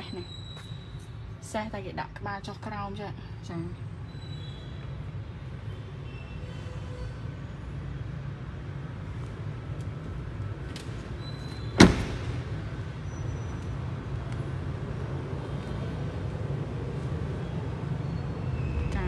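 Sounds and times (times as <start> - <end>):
car door slamming: 11.8 - 12.5.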